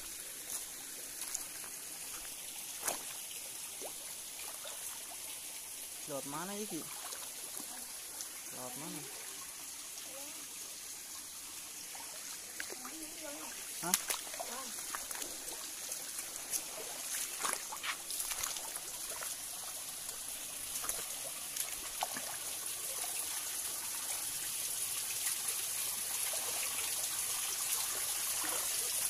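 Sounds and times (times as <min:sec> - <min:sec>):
stream trickling over rocks: 0:00.0 - 0:29.0
footsteps on stones: 0:00.4 - 0:03.2, 0:13.8 - 0:15.5, 0:16.2 - 0:18.6.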